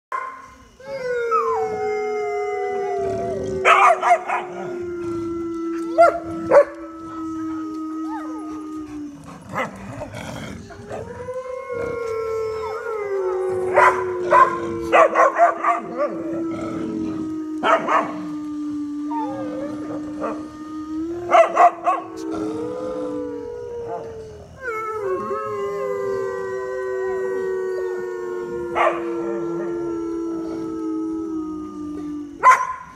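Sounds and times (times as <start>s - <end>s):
dogs howling in chorus: 0.6s - 32.9s
dogs yipping and barking: 32.4s - 32.9s.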